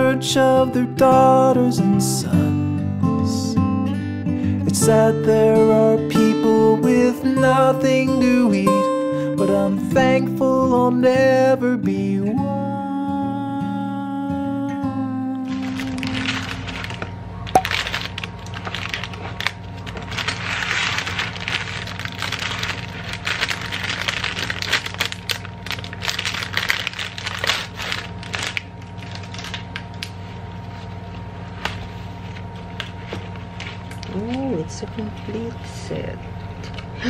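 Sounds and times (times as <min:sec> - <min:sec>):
steady low hum: 0:00.0 - 0:37.0
plastic bag crinkling: 0:15.4 - 0:35.3.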